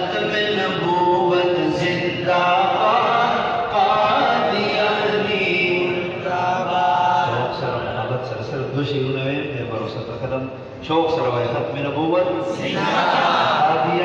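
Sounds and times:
man chanting: 0.0s - 9.8s.

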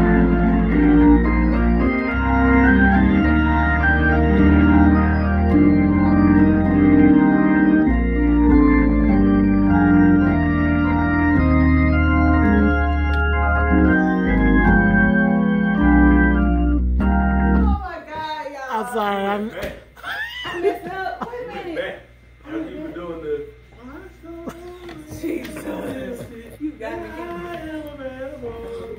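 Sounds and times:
organ playing gospel chords: 0.0s - 17.9s.

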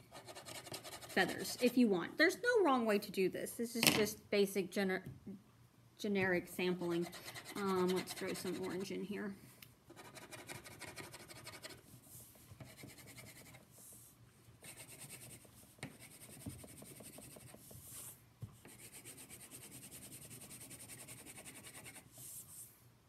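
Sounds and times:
crayon scribbling on paper: 6.9s - 8.9s, 14.6s - 18.1s, 18.7s - 22.1s.

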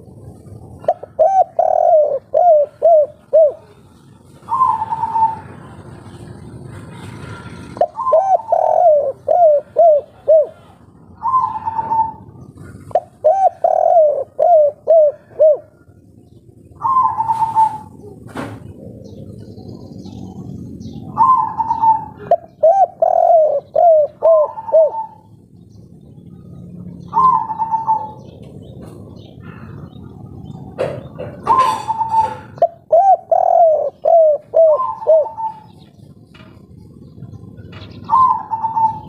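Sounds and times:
dove cooing: 0.0s - 39.0s.

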